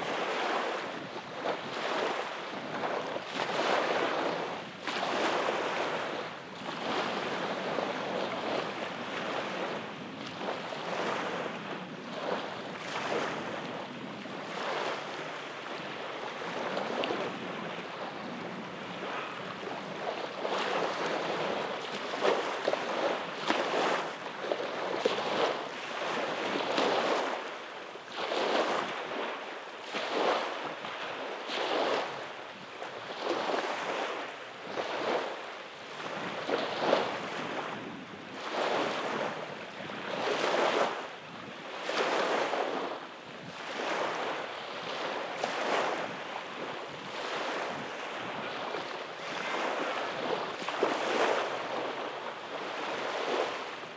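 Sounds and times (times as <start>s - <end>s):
small waves breaking on beach: 0.0s - 53.9s.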